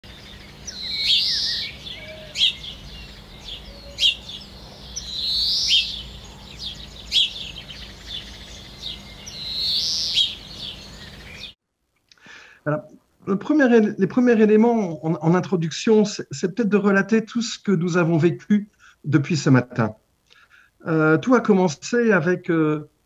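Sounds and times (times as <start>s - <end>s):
birds chirping: 0.0s - 11.6s
long bird calls: 0.0s - 11.6s.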